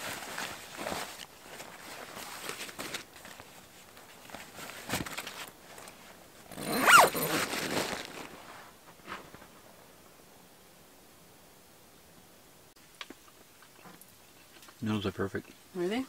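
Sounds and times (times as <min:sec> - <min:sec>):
tent flap rustling: 0:00.0 - 0:09.6
tent door zipping shut: 0:06.5 - 0:08.2.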